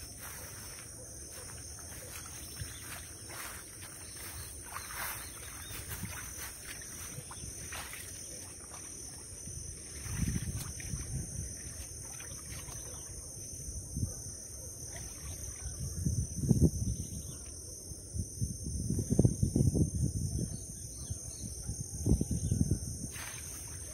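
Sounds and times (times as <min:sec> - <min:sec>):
high-pitched insect drone: 0:00.0 - 0:13.8
wind gusts on microphone: 0:01.3 - 0:12.8, 0:15.0 - 0:17.4, 0:18.0 - 0:23.9.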